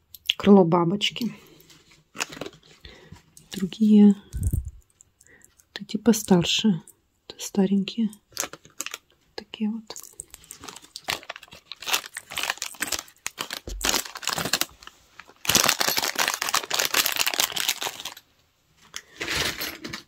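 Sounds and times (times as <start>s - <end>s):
plastic bag crinkling: 1.6s - 5.4s, 8.3s - 9.2s, 9.9s - 18.2s.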